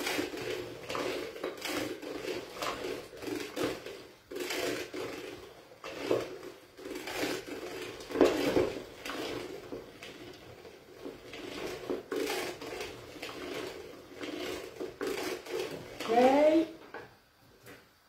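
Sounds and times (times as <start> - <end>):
food mill grinding and scraping: 0.0 - 17.1.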